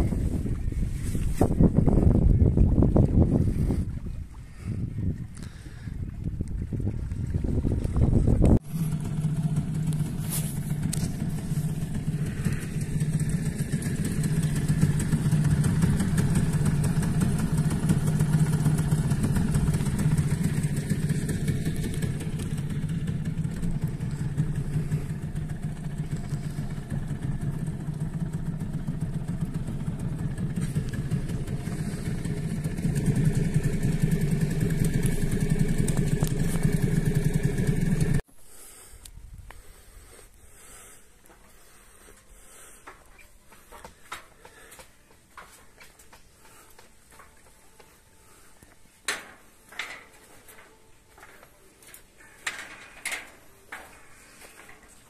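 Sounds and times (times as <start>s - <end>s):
boat motor humming: 0.0s - 38.2s.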